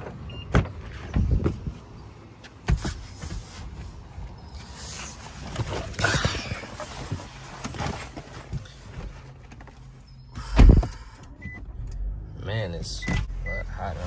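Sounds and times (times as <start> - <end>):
rustling and shuffling: 0.7 - 10.1.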